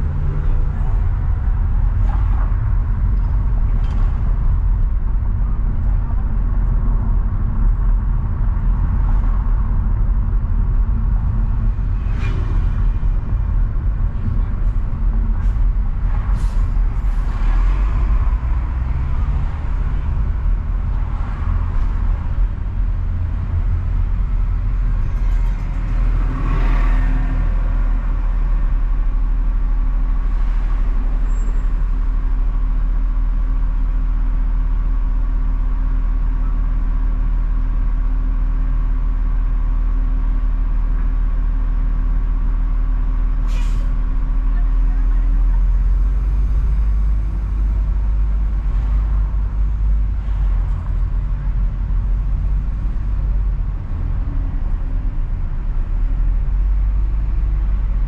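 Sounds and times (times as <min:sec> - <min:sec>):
car road rumble: 0:00.0 - 0:58.0
short hisses: 0:43.5 - 0:43.9.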